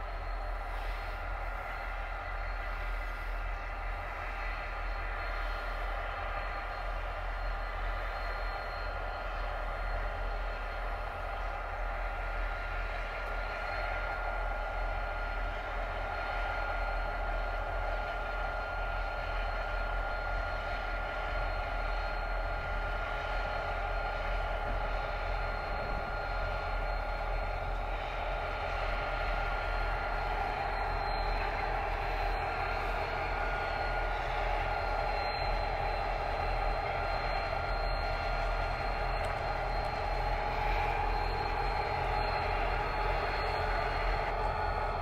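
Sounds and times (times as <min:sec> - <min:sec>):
diesel locomotive engine drone: 0:00.0 - 0:45.0
high-pitched whines: 0:00.0 - 0:45.0.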